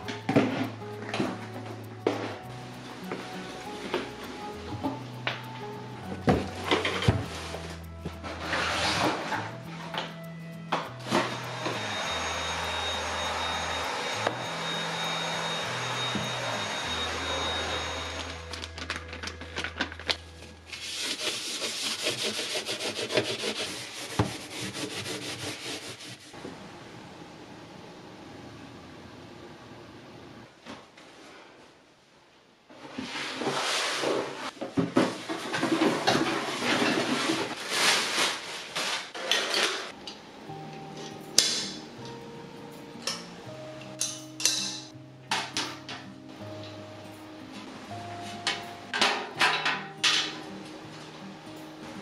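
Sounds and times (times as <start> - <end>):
soft background music: 0.0 - 23.5, 39.9 - 52.0
small electric motor whining: 11.0 - 18.6
cardboard and plastic rustling: 18.4 - 21.4, 32.9 - 39.9.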